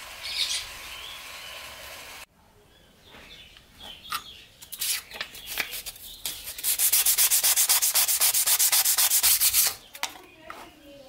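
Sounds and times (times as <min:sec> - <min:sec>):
sandpaper rubbing on metal: 0:04.7 - 0:09.8.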